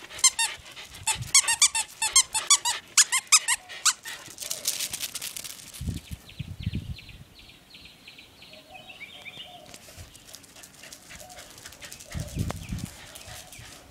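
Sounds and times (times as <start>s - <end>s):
puppy whining: 0.0s - 4.3s
puppies yipping: 0.0s - 4.6s.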